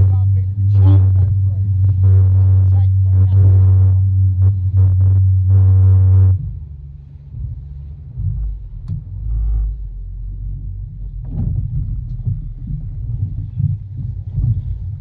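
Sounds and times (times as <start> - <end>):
outboard motor rumbling: 0.0 - 15.0
short knocks: 10.6 - 15.0.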